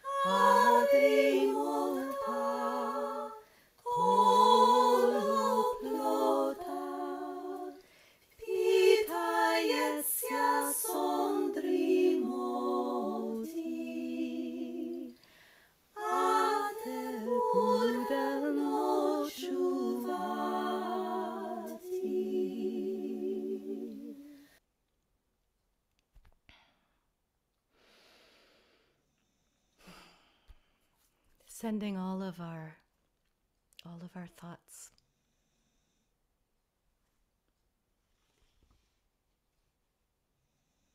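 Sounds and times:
woman singing unaccompanied: 0.0 - 7.8, 8.4 - 15.2.

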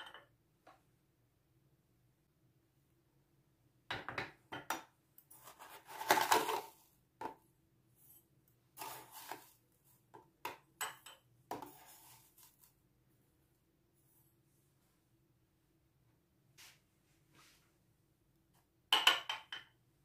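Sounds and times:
metal spoon scraping mug: 8.8 - 9.5
sugar rustling: 8.8 - 9.6.

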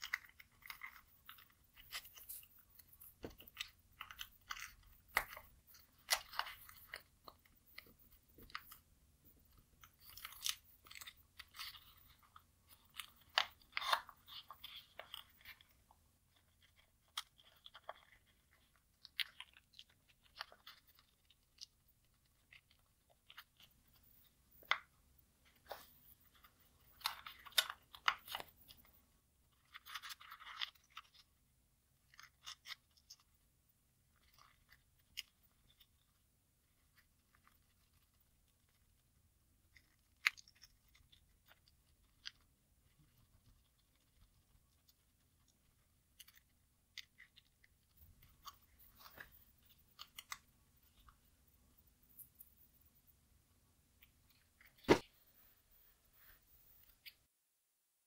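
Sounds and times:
paper crinkling and creasing: 9.4 - 24.8.

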